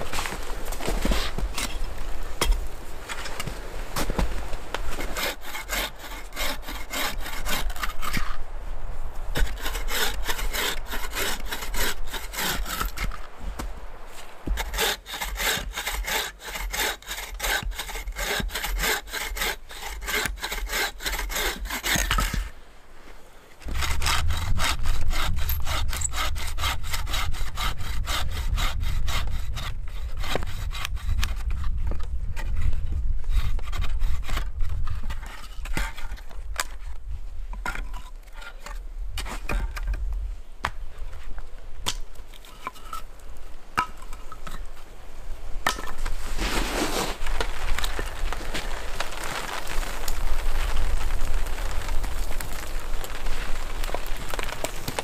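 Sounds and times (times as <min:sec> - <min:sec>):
bow saw cutting log: 0:04.9 - 0:08.4, 0:09.4 - 0:13.2, 0:14.4 - 0:22.5, 0:23.7 - 0:31.4.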